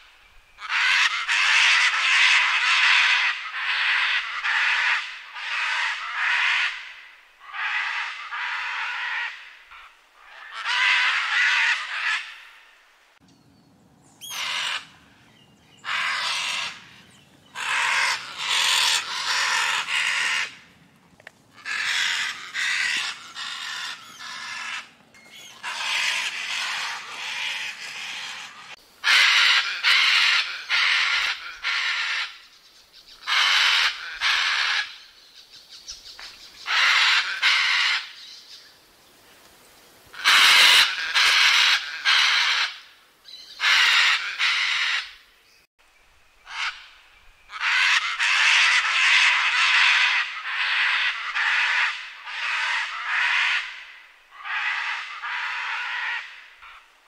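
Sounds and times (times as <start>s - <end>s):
macaws squawking: 0.6s - 12.6s, 14.2s - 20.8s, 21.5s - 32.5s, 33.2s - 35.0s, 36.2s - 38.3s, 40.1s - 45.2s, 46.5s - 56.9s.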